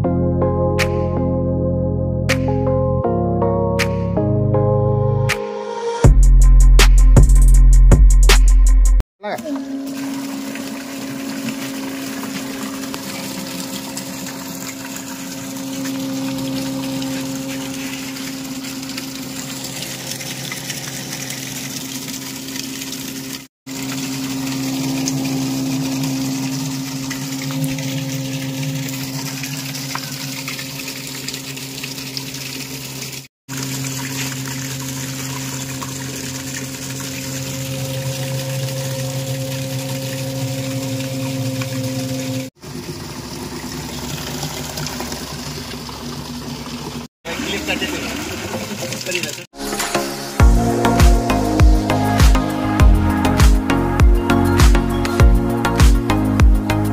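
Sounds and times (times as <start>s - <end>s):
water splashing from pipe: 9.4s - 56.9s
electric motor whine: 23.8s - 29.9s.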